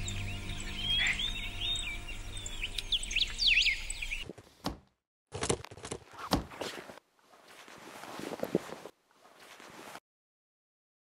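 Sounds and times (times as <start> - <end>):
knocks and thuds: 4.3 - 6.6.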